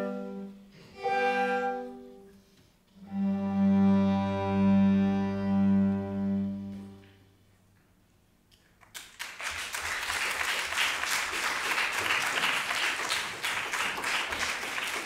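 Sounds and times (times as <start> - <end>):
audience applauding: 8.8 - 15.0.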